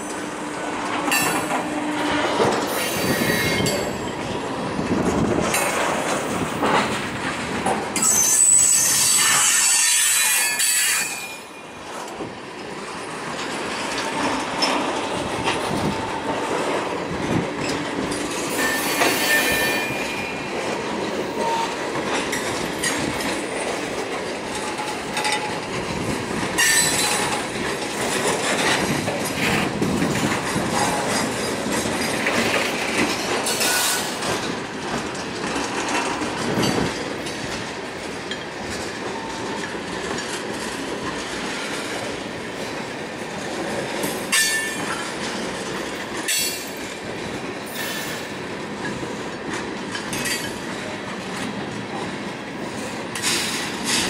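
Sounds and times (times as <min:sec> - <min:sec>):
wheels clacking over rail joints: 0:00.0 - 0:54.0
freight cars rolling on steel wheels: 0:00.9 - 0:52.1
high-pitched wheel squeal: 0:02.7 - 0:03.8, 0:08.0 - 0:11.6, 0:18.5 - 0:20.4.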